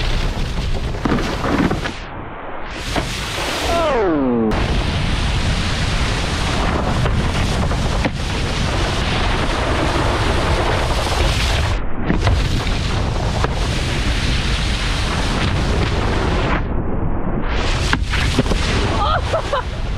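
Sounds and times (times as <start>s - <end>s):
wakeboard rushing through water: 0.0s - 16.7s, 17.4s - 19.9s
wind buffeting microphone: 4.5s - 16.8s.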